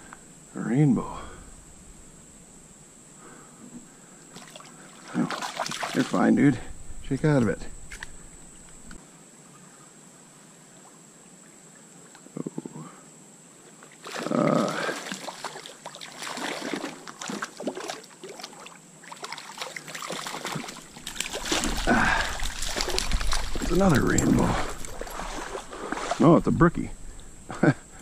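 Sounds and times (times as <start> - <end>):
water splashing and sloshing: 4.0 - 9.0, 13.8 - 28.0
handling clicks and rustles: 20.5 - 28.0.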